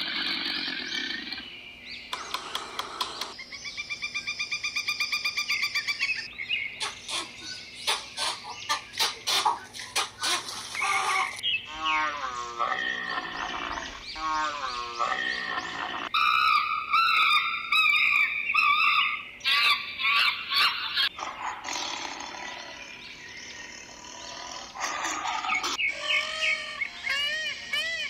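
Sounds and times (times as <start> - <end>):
chimpanzee shrill calls: 6.8 - 13.2, 14.1 - 21.3, 24.8 - 28.0
camels groaning: 10.4 - 16.1
tigers growling: 10.8 - 16.1, 23.6 - 25.8.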